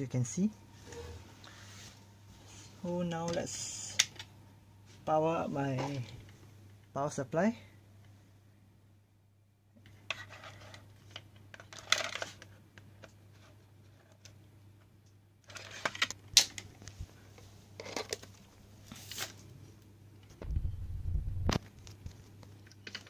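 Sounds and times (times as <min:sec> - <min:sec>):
faint low hum: 0:00.0 - 0:23.0
cables and plastic parts handled: 0:09.8 - 0:19.5, 0:21.5 - 0:23.0.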